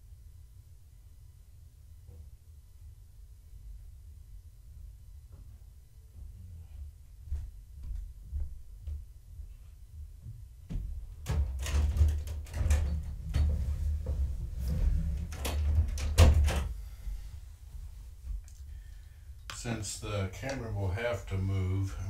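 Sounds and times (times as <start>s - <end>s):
objects knocking and rattling: 10.7s - 16.7s.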